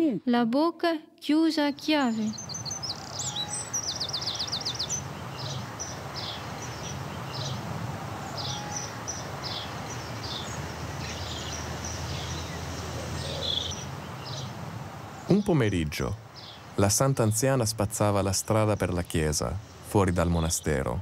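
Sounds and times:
bird chirping: 0:01.6 - 0:21.0
bird trilling: 0:02.0 - 0:14.6.

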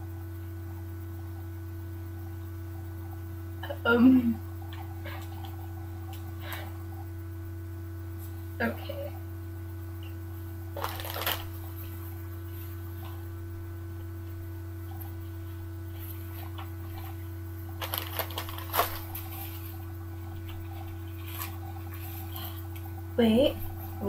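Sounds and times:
low electrical hum: 0:00.0 - 0:24.0
diaper rustling and crinkling: 0:10.8 - 0:13.2, 0:14.9 - 0:23.0.

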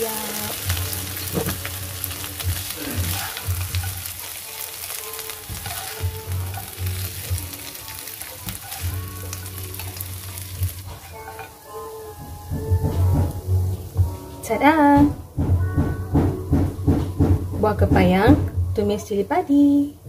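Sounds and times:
seeds sizzling in a pan: 0:00.0 - 0:14.6
spatula scraping and clattering: 0:02.6 - 0:11.6.

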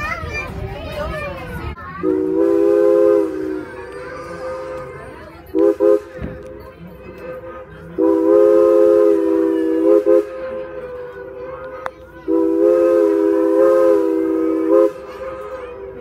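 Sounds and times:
steam whistle chord: 0:02.0 - 0:03.6, 0:08.0 - 0:11.4, 0:12.3 - 0:15.1.

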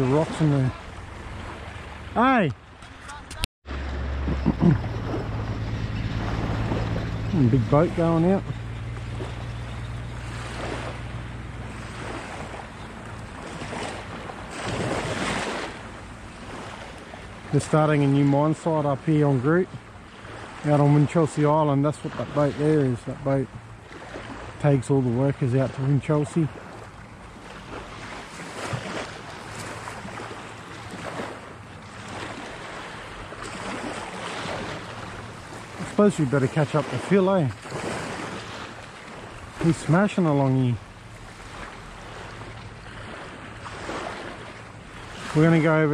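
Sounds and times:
wind on microphone: 0:00.0 - 0:16.6
boat engine droning: 0:00.0 - 0:45.9
waves washing against rocky shore: 0:10.2 - 0:19.4, 0:25.4 - 0:45.9.

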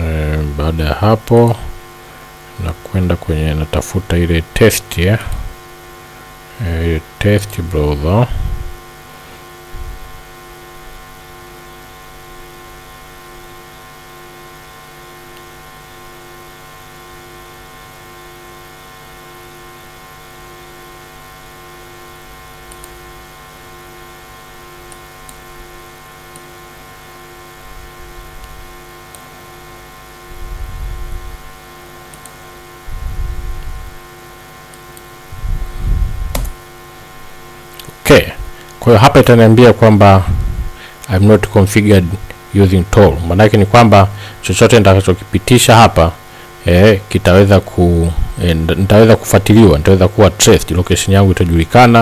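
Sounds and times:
electrical mains hum: 0:00.0 - 0:52.0
sharp click: 0:36.3 - 0:36.6.

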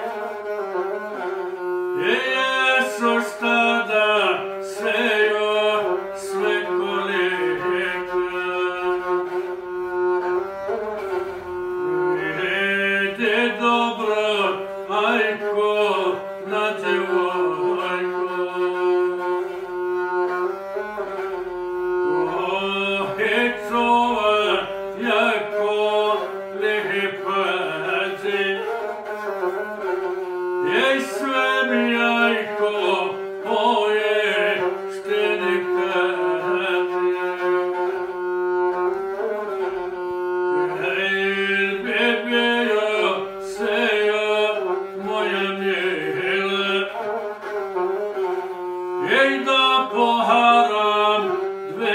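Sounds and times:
bowed single-string fiddle: 0:00.0 - 0:51.9
man singing: 0:02.0 - 0:09.4, 0:12.2 - 0:19.3, 0:22.2 - 0:29.0, 0:30.6 - 0:38.1, 0:40.6 - 0:47.4, 0:49.0 - 0:51.9.

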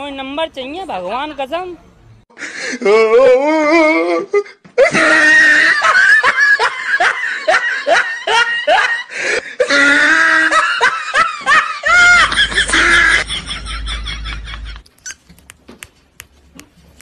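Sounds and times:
person laughing hard: 0:04.8 - 0:14.8.

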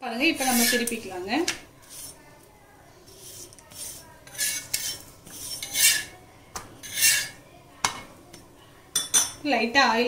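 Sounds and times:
metal spatula scraping griddle: 0:00.3 - 0:01.2, 0:01.8 - 0:02.2, 0:03.1 - 0:06.2, 0:06.8 - 0:07.4.

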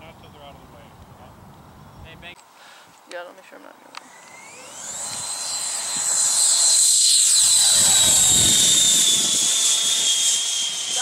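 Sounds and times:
electric ducted fans whining: 0:04.0 - 0:11.0.

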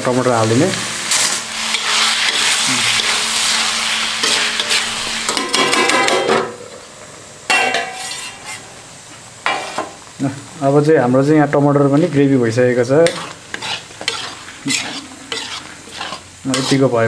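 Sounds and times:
tomatoes sizzling in hot oil: 0:00.0 - 0:17.0
metal spatula scraping a wok: 0:01.1 - 0:05.6, 0:07.6 - 0:08.7, 0:09.5 - 0:09.9, 0:13.0 - 0:17.0.

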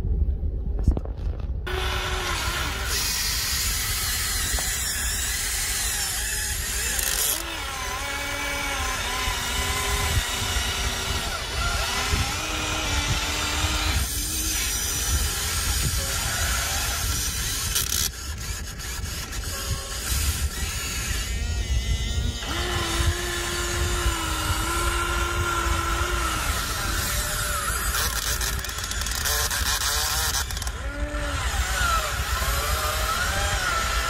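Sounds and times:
low steady rumble: 0:00.0 - 0:18.5
electric motors whining: 0:01.6 - 0:34.0.

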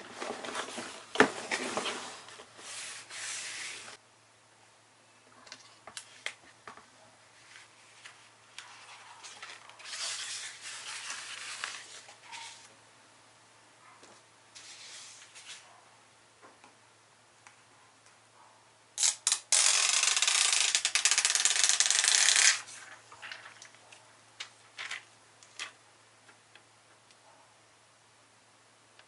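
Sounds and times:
paper sheet rustling: 0:00.0 - 0:04.0, 0:07.4 - 0:12.7, 0:14.6 - 0:15.7, 0:21.9 - 0:25.8
adhesive sheet peeling with crackle: 0:19.0 - 0:22.7.

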